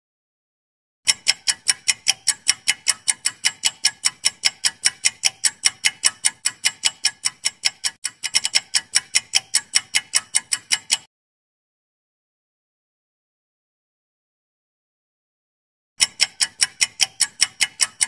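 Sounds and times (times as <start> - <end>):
countdown timer ticking: 1.1 - 11.1, 16.0 - 18.0.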